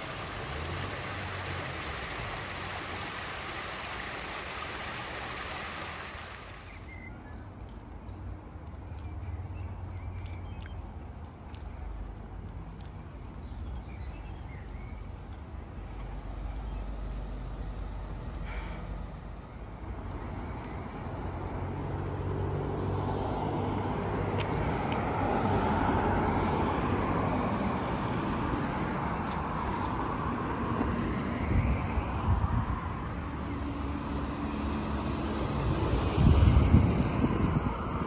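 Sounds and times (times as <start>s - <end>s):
car passing by: 0.0s - 7.0s, 20.3s - 38.0s.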